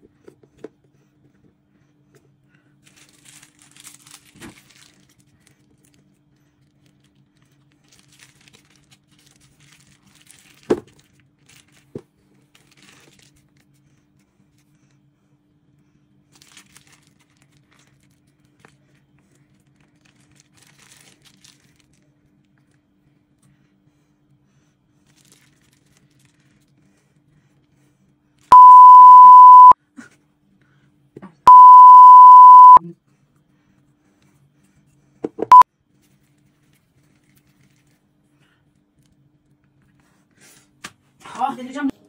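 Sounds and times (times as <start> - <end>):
plastic bag crinkling: 2.9 - 5.2, 7.8 - 10.7, 20.0 - 21.9
faint steady hum: 28.5 - 29.8, 31.5 - 32.8.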